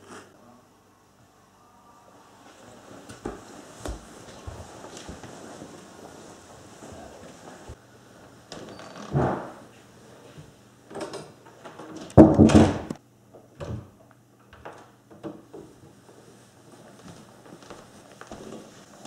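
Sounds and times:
wooden door being handled: 0:10.9 - 0:13.0
knocks on wooden door: 0:12.2 - 0:12.9.

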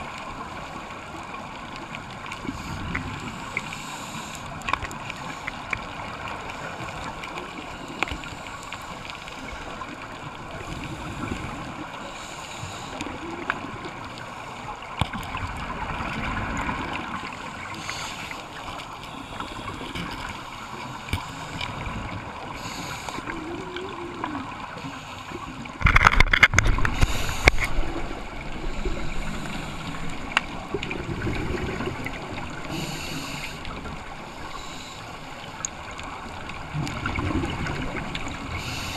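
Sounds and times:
diver's regulator breathing: 0:02.4 - 0:05.8, 0:10.5 - 0:13.5, 0:17.2 - 0:25.9, 0:26.6 - 0:30.8, 0:32.3 - 0:35.7, 0:38.2 - 0:38.9
gush of exhaled bubbles: 0:26.5 - 0:32.6, 0:36.6 - 0:38.9.

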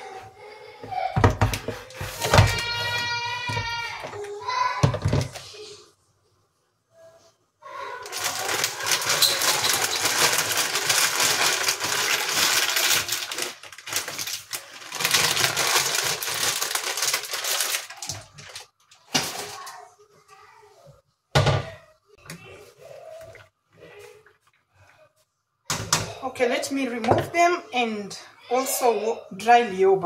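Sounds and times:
dry pasta rattling into a pot: 0:08.1 - 0:19.5.

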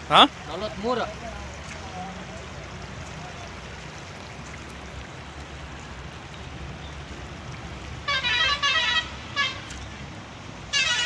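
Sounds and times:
vehicle horn honking: 0:08.0 - 0:09.8, 0:10.7 - 0:11.0.

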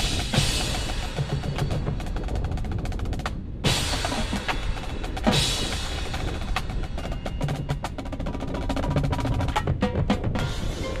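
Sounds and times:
snare and bass drum: 0:00.0 - 0:11.0.

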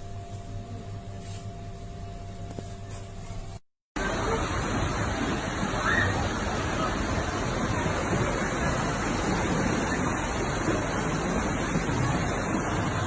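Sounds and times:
floodwater rushing: 0:04.0 - 0:13.0.

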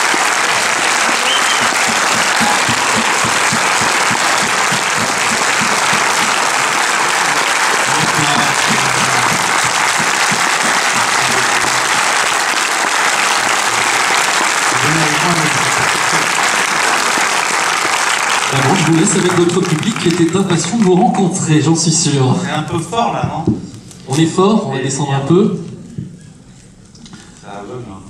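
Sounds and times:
audience applauding: 0:00.0 - 0:21.5.

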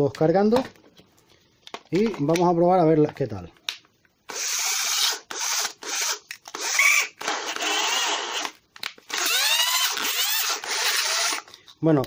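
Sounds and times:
cordless drill motor whining: 0:04.3 - 0:11.5.

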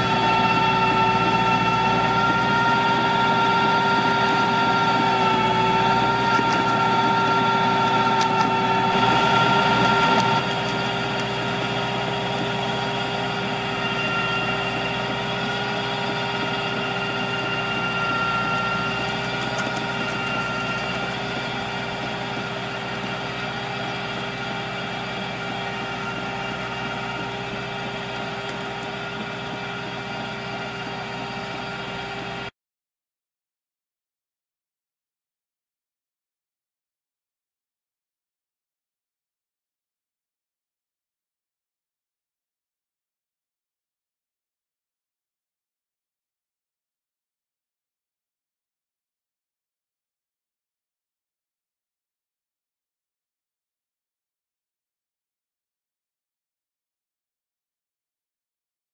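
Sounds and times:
pruning machine whine: 0:00.0 - 0:32.5
tractor engine running: 0:00.0 - 0:32.5.

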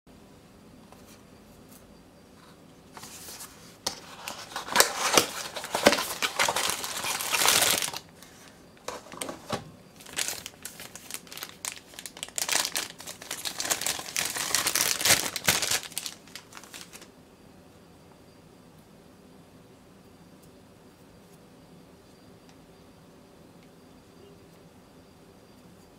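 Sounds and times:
plastic bag crinkling: 0:03.0 - 0:08.2, 0:08.8 - 0:17.1.

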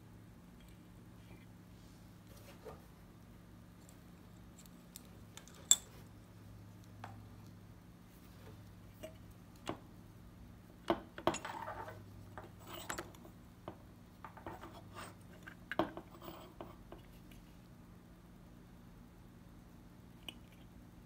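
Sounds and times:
small tools clicking and clinking: 0:04.5 - 0:06.0.

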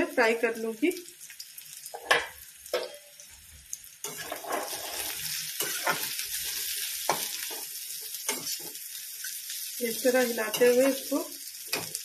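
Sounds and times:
batter frying in hot oil: 0:00.0 - 0:12.0
spoon scraping and knocking wok: 0:04.0 - 0:08.8.

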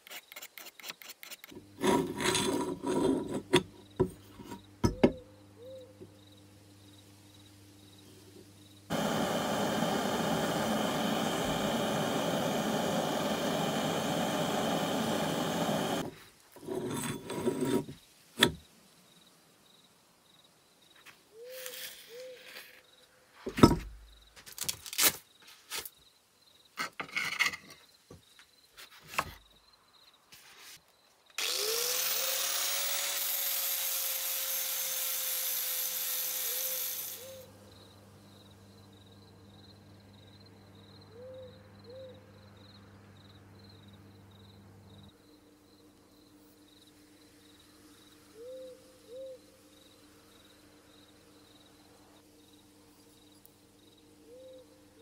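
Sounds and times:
rotary tool abrading metal: 0:00.0 - 0:03.8, 0:15.9 - 0:18.6
motor spinning up: 0:08.9 - 0:16.1, 0:31.4 - 0:37.4.

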